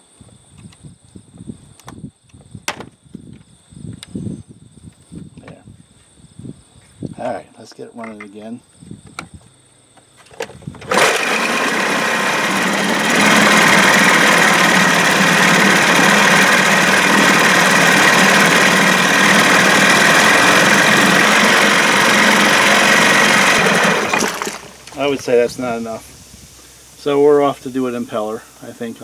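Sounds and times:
outboard motor running: 0:10.8 - 0:26.0.

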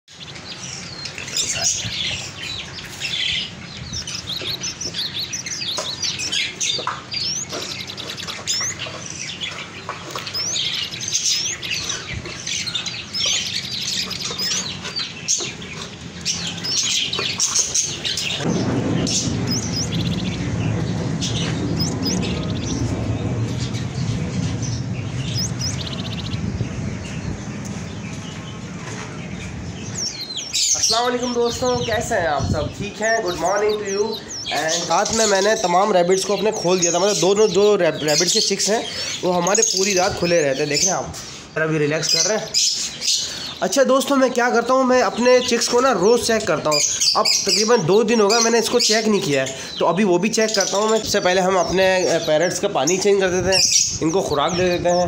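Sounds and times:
small birds chirping: 0:00.1 - 0:55.0
steady low hum: 0:00.2 - 0:35.0.

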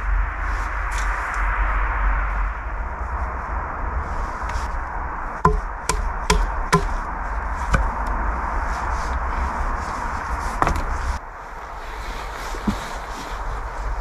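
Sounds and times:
hatchet chopping wooden pole: 0:05.4 - 0:07.1, 0:07.7 - 0:08.0.

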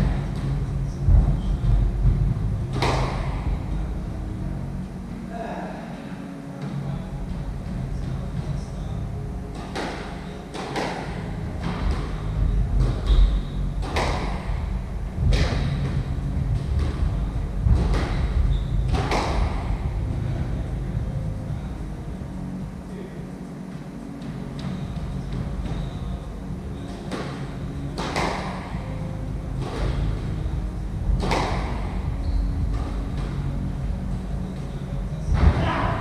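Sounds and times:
squash ball hits echoing: 0:00.0 - 0:04.2, 0:09.5 - 0:21.0, 0:26.8 - 0:36.0
steady low rumble: 0:00.0 - 0:36.0
shoes squeaking on wooden floor: 0:09.5 - 0:20.6, 0:23.8 - 0:36.0.

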